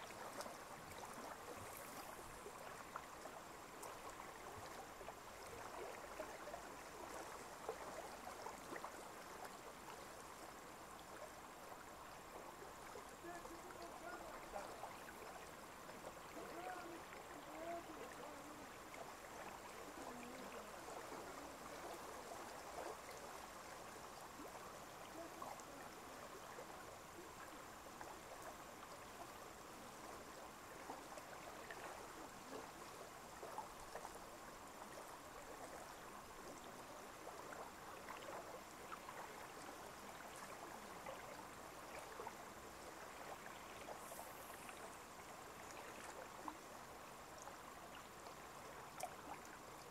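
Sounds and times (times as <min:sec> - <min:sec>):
lake water lapping: 0:00.0 - 0:10.2, 0:12.6 - 0:28.4
small water splashes: 0:00.0 - 0:49.9.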